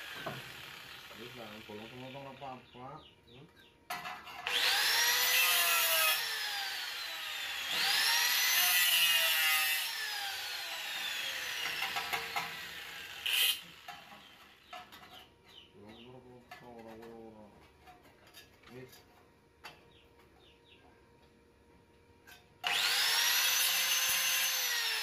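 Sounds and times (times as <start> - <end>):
angle grinder grinding metal: 0.0 - 2.7, 4.0 - 15.2, 22.3 - 25.0.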